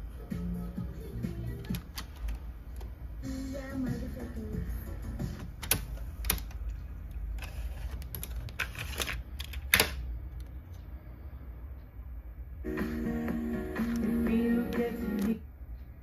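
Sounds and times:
cassette mechanism clicks and clunks: 1.6 - 2.9, 5.3 - 6.7, 7.4 - 10.0.

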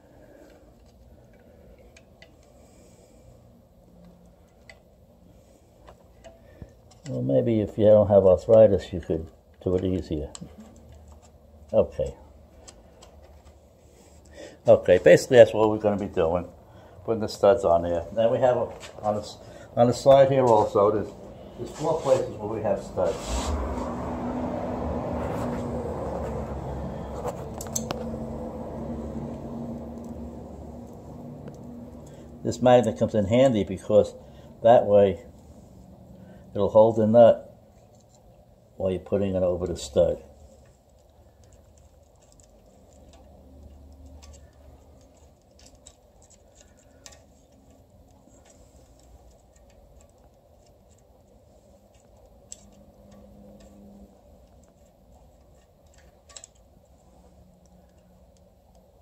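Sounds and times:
steady low hum: 0.0 - 59.0
small metallic clicks and taps: 27.4 - 28.1, 40.6 - 57.0.

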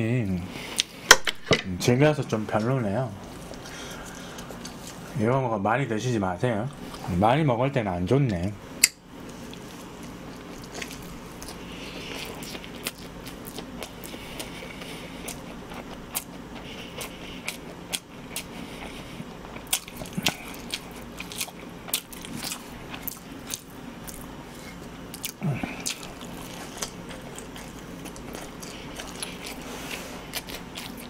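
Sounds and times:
chewing noodles: 9.3 - 31.0.

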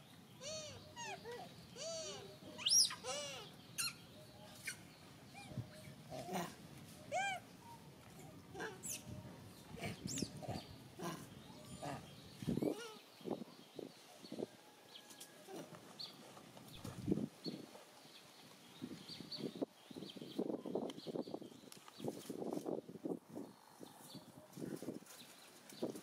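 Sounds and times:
monkey high squeal: 0.4 - 1.2, 1.8 - 4.0
monkeys cooing: 0.4 - 3.9, 5.4 - 7.4, 8.2 - 13.0.

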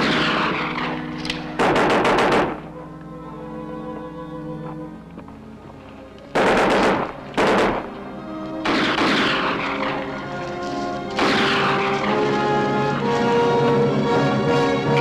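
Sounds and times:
gunfire bursts: 0.0 - 2.7, 6.4 - 8.0, 8.6 - 9.9, 11.2 - 11.9
dramatic orchestral music: 0.0 - 15.0.

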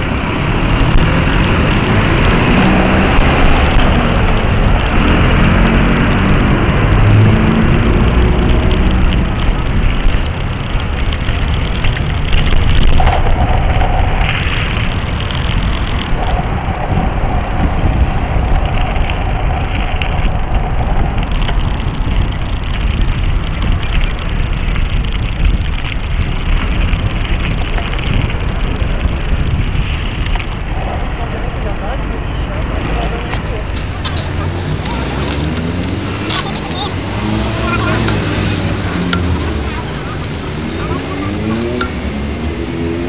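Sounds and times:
tyre and road vibration: 0.0 - 43.0
wind on microphone: 0.0 - 43.0.

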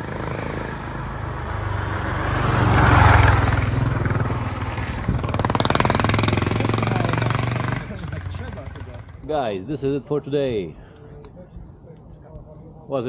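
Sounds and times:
motorcycle engine running: 0.0 - 9.3.

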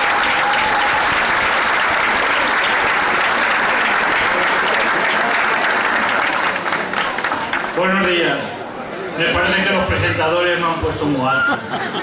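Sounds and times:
large crowd applauding: 0.0 - 8.0.

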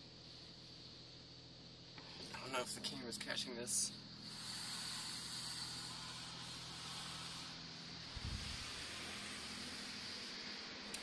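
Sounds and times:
low hum of wash machinery: 0.0 - 11.0
water jets spraying on car: 8.5 - 11.0.

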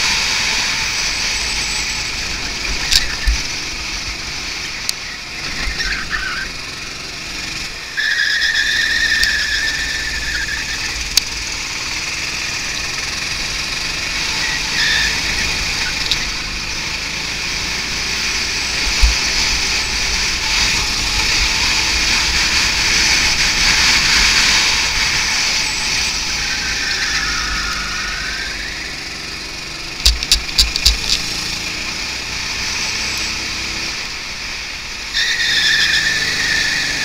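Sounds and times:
go-kart engine running: 0.0 - 37.0
short squeal: 0.6 - 2.4, 7.9 - 11.1, 24.1 - 29.1.

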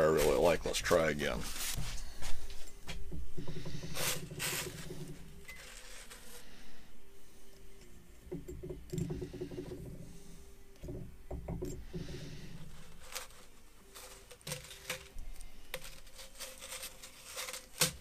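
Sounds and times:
pliers and wire scraping on metal: 0.0 - 6.7, 11.6 - 18.0.

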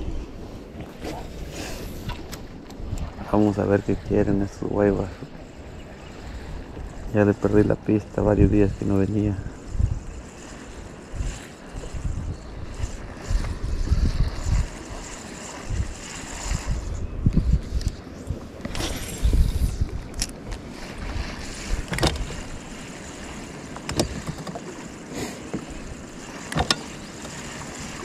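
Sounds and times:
wind buffeting microphone: 0.0 - 24.8
sharp clicks and knocks: 23.8 - 24.7, 26.5 - 26.9.

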